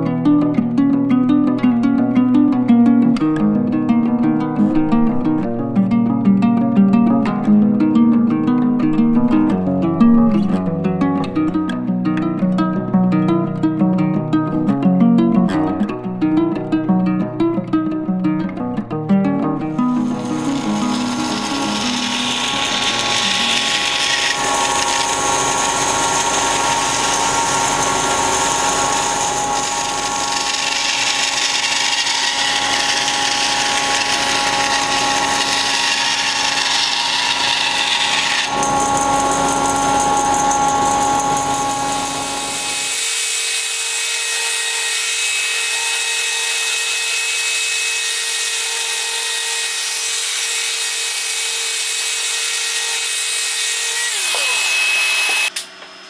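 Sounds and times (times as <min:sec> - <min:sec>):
bandsaw cutting wood: 0:19.7 - 0:55.6
orbital sander running: 0:19.8 - 0:55.5.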